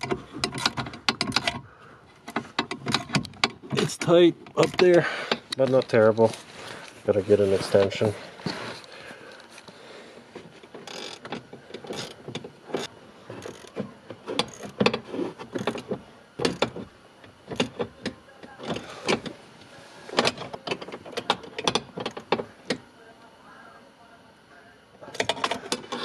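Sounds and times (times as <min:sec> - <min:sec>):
ratchet wrench clicking: 0:10.8 - 0:16.8.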